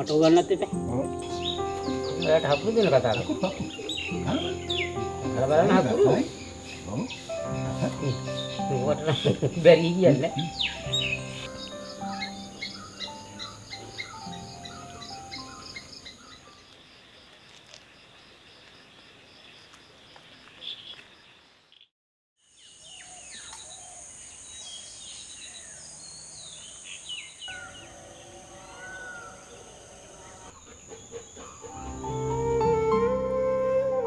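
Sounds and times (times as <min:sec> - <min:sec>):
music: 0:00.0 - 0:16.2, 0:31.7 - 0:34.0
insects shrilling: 0:00.0 - 0:16.6
birds chirping: 0:00.0 - 0:16.7, 0:22.6 - 0:34.0.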